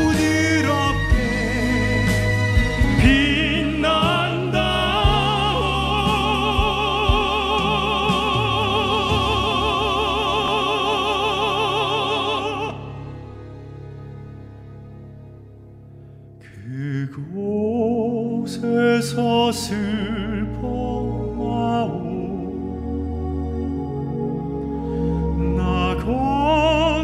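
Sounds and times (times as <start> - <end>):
men singing operatically: 0.0 - 13.0
instrumental backing track: 0.0 - 16.5.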